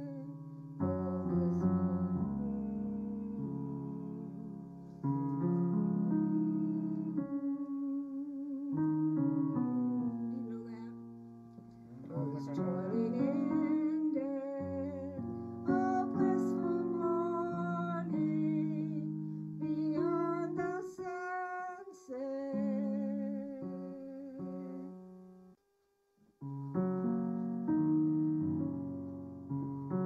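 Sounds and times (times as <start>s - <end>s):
elderly woman singing a hymn: 0.0s - 4.7s, 6.1s - 8.9s, 10.3s - 11.0s, 12.0s - 25.0s
piano accompaniment: 0.0s - 25.6s, 26.4s - 30.0s.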